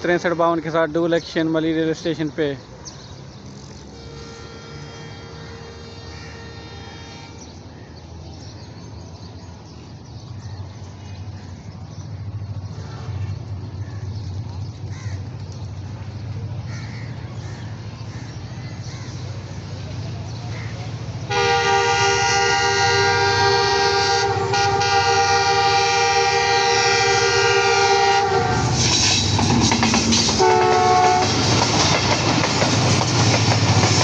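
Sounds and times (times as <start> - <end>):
diesel locomotive rumble: 0.0 - 34.0
crows cawing: 14.9 - 15.4, 16.7 - 19.5.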